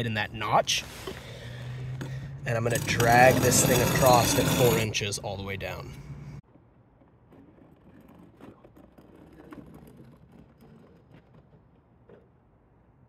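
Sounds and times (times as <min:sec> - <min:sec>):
metal square scraping concrete: 0:02.0 - 0:05.4, 0:07.2 - 0:12.2.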